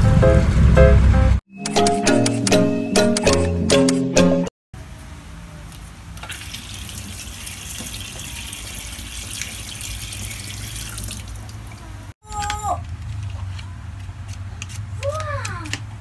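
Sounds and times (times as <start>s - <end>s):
tap water splashing into sink: 6.2s - 11.8s.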